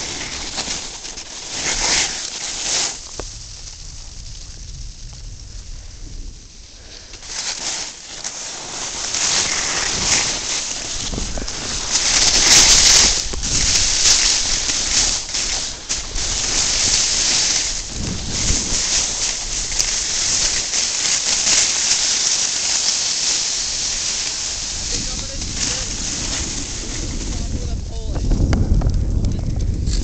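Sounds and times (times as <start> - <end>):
snowboard hissing over snow: 0.0 - 28.0
wind buffeting microphone: 3.1 - 7.2, 9.5 - 21.0, 23.6 - 30.0.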